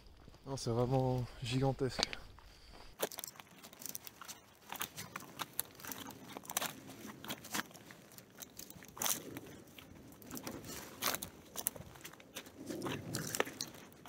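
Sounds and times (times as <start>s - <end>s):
footsteps through dry grass: 0.0s - 14.0s.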